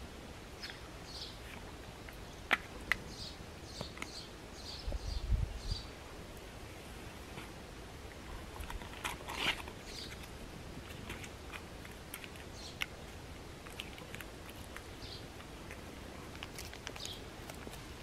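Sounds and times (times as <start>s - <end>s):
dog chewing food: 11.8s - 18.0s.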